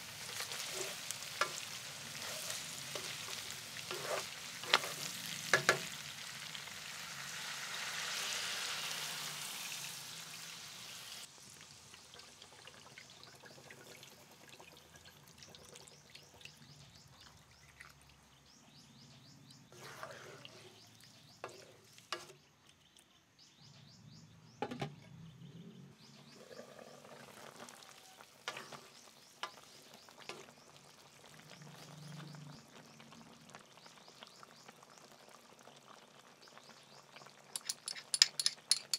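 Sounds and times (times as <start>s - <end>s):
meat sizzling in a wok: 0.0s - 14.4s, 26.3s - 38.9s
spatula clanking: 0.3s - 5.9s, 37.6s - 38.9s
spoon and utensil clinks: 37.6s - 38.9s.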